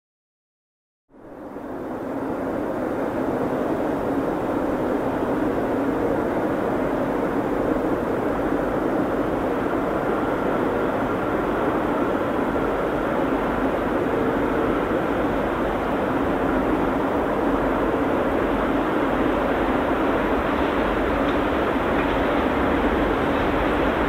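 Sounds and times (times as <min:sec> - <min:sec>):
faint whine: 0:01.1 - 0:24.0
train rumbling on rails: 0:01.1 - 0:24.0.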